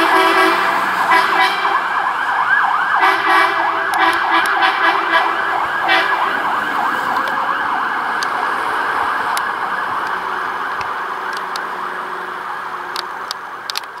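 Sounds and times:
horn blast: 0.0 - 2.0, 2.9 - 6.4
fire engine siren wailing: 0.0 - 14.0.

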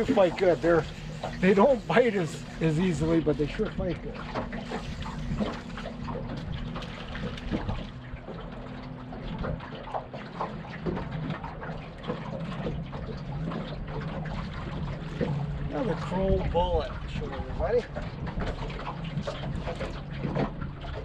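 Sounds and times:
steady low hum: 0.0 - 21.0
water lapping against boat hull: 0.0 - 21.0.

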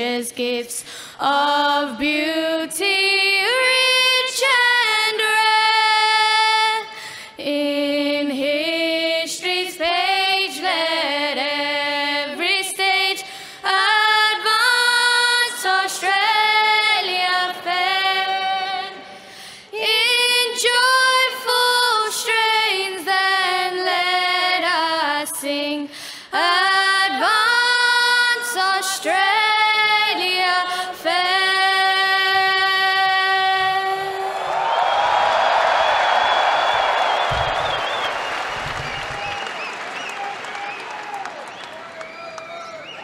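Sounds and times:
crowd applause: 34.2 - 43.0.

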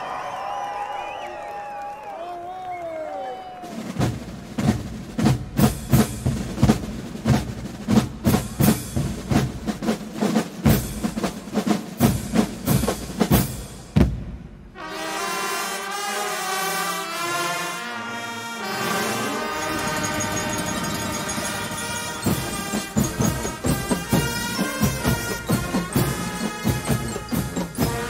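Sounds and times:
drums beating steady rhythm: 3.6 - 14.8, 18.7 - 28.0
brass instruments holding chord: 14.8 - 28.0.

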